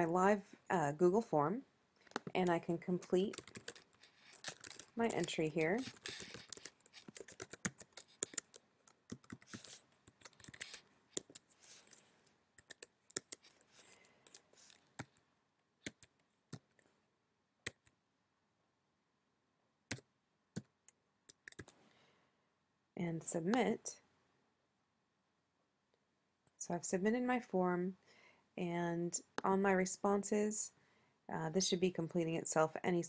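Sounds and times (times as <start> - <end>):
typing on laptop keyboard: 2.0 - 12.0, 12.6 - 15.2, 15.8 - 16.8, 21.3 - 21.7.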